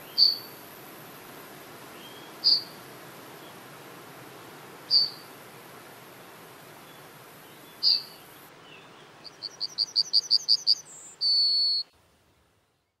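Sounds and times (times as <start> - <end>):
bird song: 0.0 - 0.6, 2.0 - 2.8, 4.9 - 5.3, 6.8 - 11.9.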